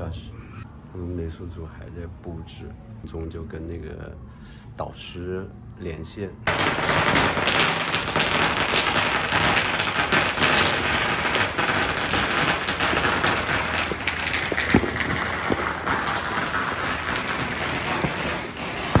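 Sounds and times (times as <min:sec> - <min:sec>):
fireworks popping and crackling: 0:06.5 - 0:19.0
loud firework bang: 0:06.5 - 0:19.0.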